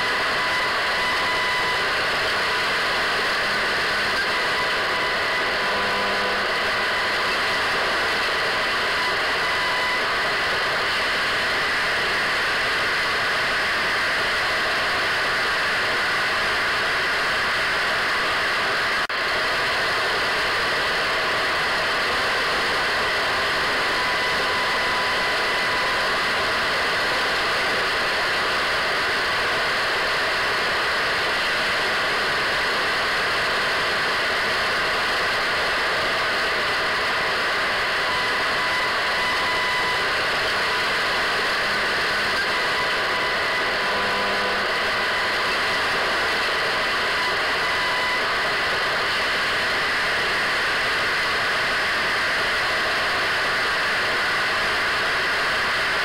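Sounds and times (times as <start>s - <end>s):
radio static hiss: 33.5s - 51.0s.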